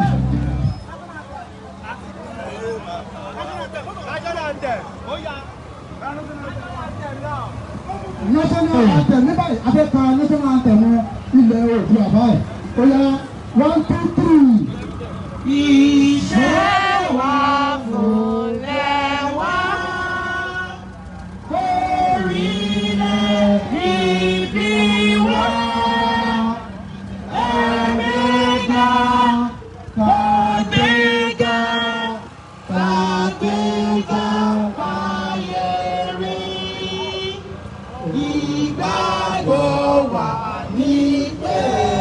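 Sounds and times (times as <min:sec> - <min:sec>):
group of voices chanting: 0:15.9 - 0:20.9, 0:21.5 - 0:42.0.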